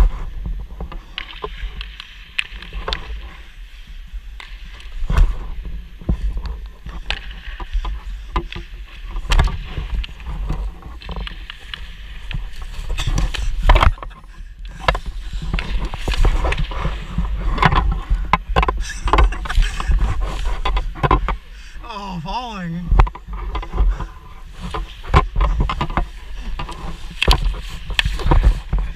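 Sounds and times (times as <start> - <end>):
skates scraping on ice: 1.2 - 21.5, 23.5 - 28.9
puck and stick knocking: 9.3 - 21.4.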